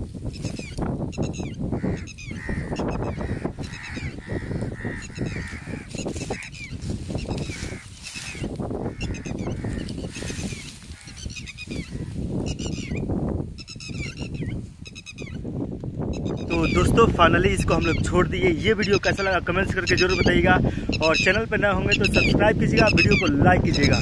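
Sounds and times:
rustling grass: 0.0s - 17.8s
wind on microphone: 0.0s - 24.0s
birds chattering: 0.3s - 24.0s.

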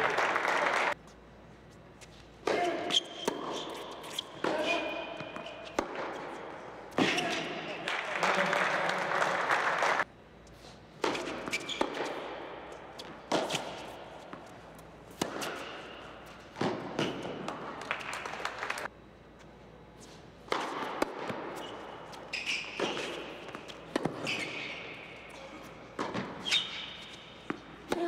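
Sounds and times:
tennis ball bounces: 2.4s - 7.6s, 11.0s - 18.4s, 20.5s - 25.3s, 25.9s - 28.0s
tennis racket strikes: 11.0s - 17.6s, 20.5s - 25.2s.

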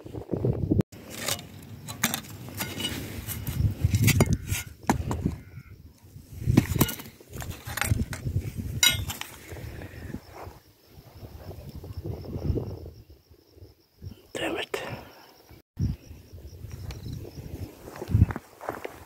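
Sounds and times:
scrap metal clinking and scraping: 1.0s - 5.4s, 6.5s - 9.6s.

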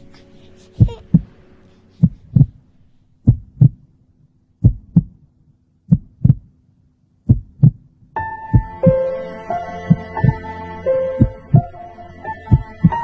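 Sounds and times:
heartbeat thumps: 0.8s - 1.3s, 2.0s - 2.6s, 3.2s - 3.9s, 4.6s - 5.2s, 5.9s - 6.6s, 7.2s - 7.9s, 8.5s - 9.0s, 9.9s - 10.4s, 11.2s - 11.7s, 12.5s - 13.0s.

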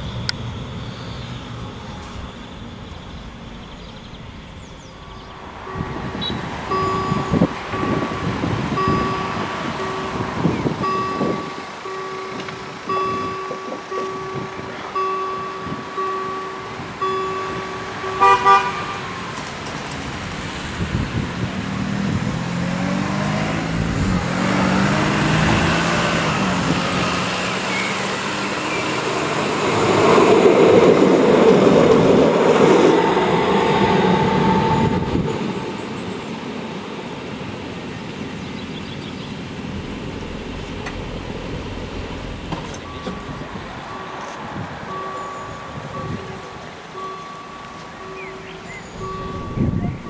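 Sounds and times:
tram motors whining: 0.0s - 50.0s
tram wheels on rails: 0.0s - 50.0s
horn toot: 17.0s - 19.4s.

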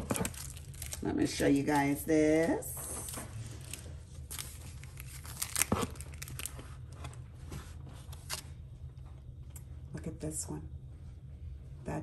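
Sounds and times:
plastic packaging crinkling: 0.0s - 7.2s.

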